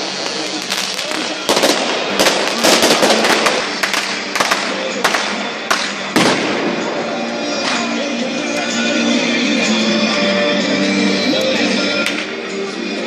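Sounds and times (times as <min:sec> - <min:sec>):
firecrackers banging: 0:00.0 - 0:10.4, 0:11.2 - 0:12.6
music: 0:00.0 - 0:13.0.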